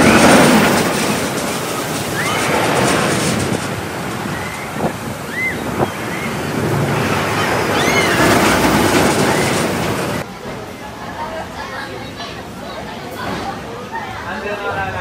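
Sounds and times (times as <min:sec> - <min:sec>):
roller coaster rumbling on track: 0:00.0 - 0:15.0
short high cries: 0:07.6 - 0:08.6.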